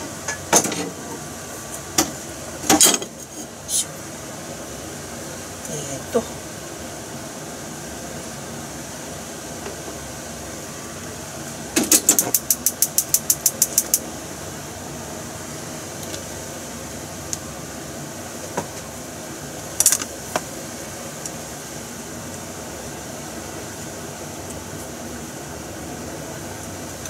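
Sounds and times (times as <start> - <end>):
steady background hum: 0.0 - 27.0
gas stove igniter clicking: 11.9 - 14.0.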